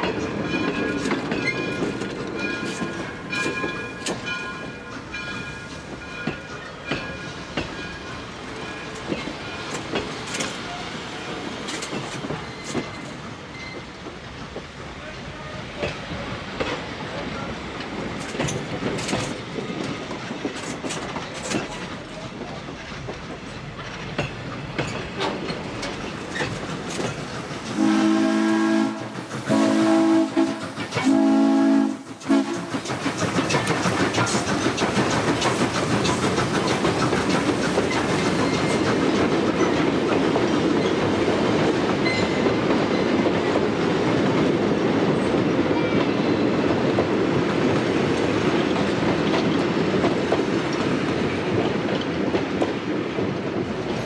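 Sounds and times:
steam locomotive clanking and hissing: 0.0 - 54.0
train wheels clattering over rail joints: 0.0 - 54.0
steam whistle blasts: 27.7 - 32.7.

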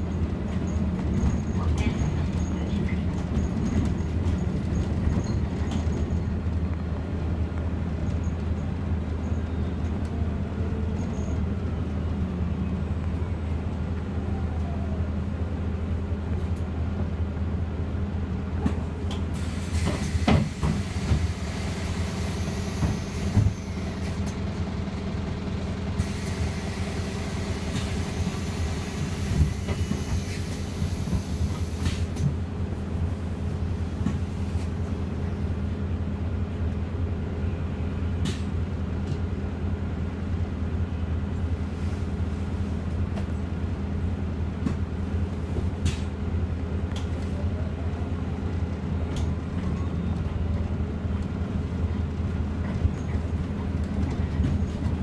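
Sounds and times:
bus drivetrain hum: 0.0 - 55.0
road noise: 0.0 - 55.0
bus body knocks and rattles: 0.3 - 6.6, 18.6 - 21.3, 52.0 - 55.0.

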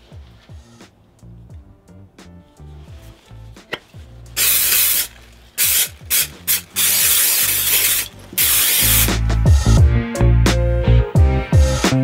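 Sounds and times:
aerosol spray hissing: 4.4 - 9.2.

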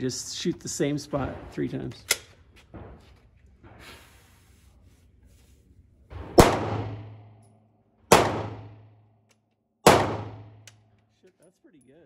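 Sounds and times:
pistol shots with echo: 6.2 - 7.3, 8.1 - 8.9, 9.8 - 10.7.

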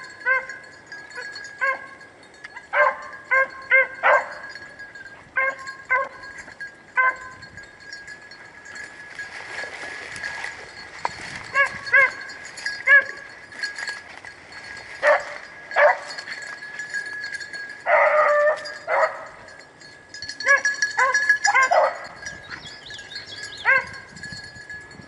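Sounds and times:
hounds barking: 0.2 - 0.6, 1.2 - 2.0, 2.7 - 4.6, 5.4 - 6.3, 7.0 - 7.4, 11.5 - 13.2, 15.0 - 16.2, 17.8 - 19.4, 20.4 - 22.7, 23.5 - 24.1.

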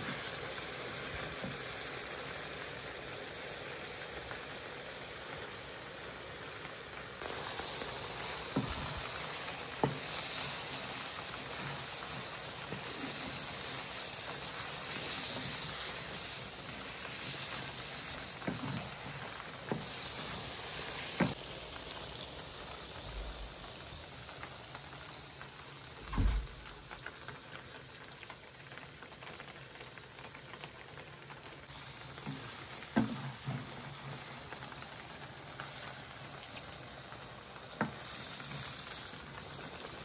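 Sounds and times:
chicken sizzling in a wok: 0.0 - 40.0
wooden spatula stirring: 7.2 - 21.4.

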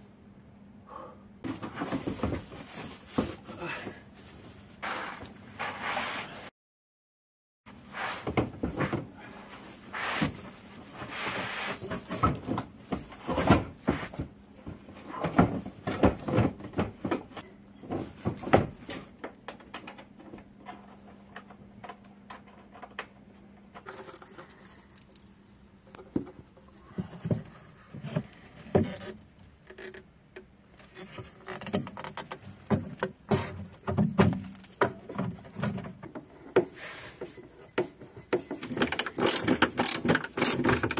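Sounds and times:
tools clicking and scraping on car: 25.9 - 40.9.

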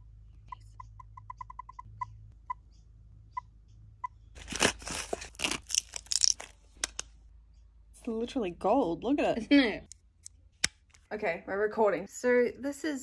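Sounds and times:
plastic blister pack crinkling: 4.4 - 7.0.

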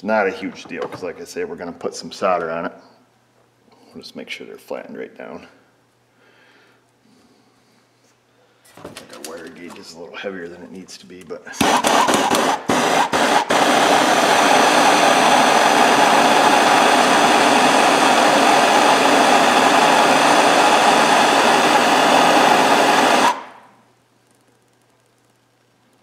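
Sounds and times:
gas torch hissing: 11.5 - 23.8.

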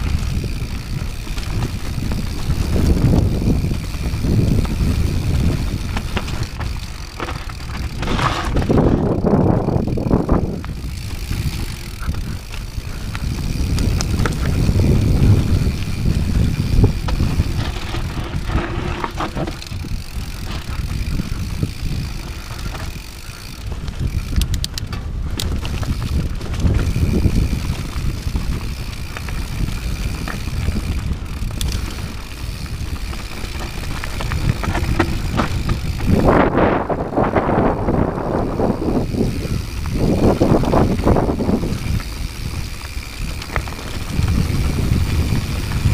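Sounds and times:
bike clicks and knocks: 0.0 - 45.9
tyres rumbling over dirt: 0.0 - 45.9
wind buffeting microphone: 0.0 - 45.9.

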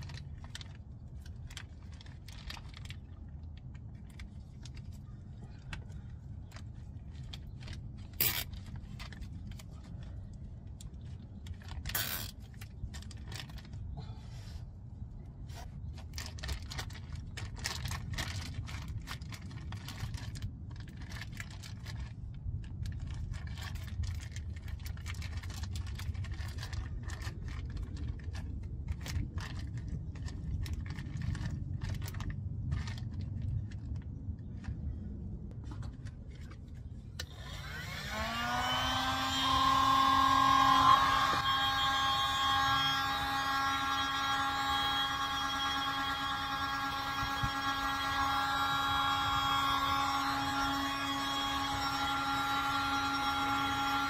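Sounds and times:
plastic bag crinkling: 0.0 - 5.3, 15.8 - 34.7
low background rumble: 0.0 - 54.0
heat gun fan humming: 37.2 - 54.0.

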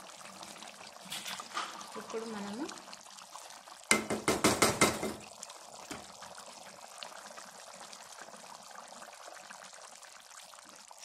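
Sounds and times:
thick gravy bubbling in pan: 0.0 - 11.0
loud knocks: 3.9 - 5.2.

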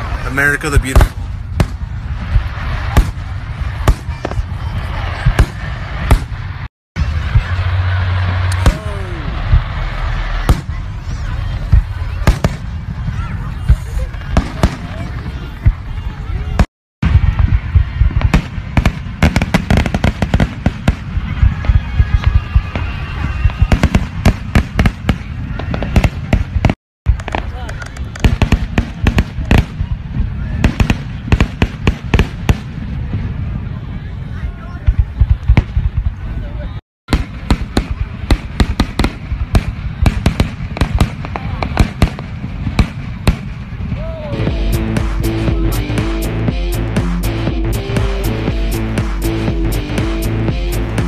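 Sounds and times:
low rumble: 1.2 - 24.3, 42.3 - 51.0
music with steady notes: 44.4 - 51.0.

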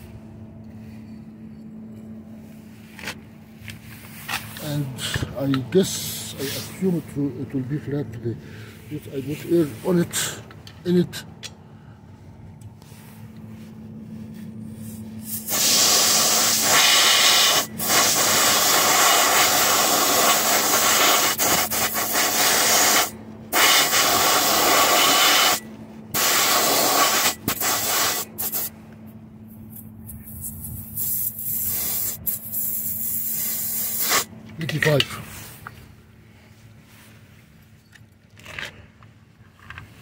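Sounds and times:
compressed air hissing: 5.9 - 7.0, 14.8 - 28.8, 30.3 - 34.3.

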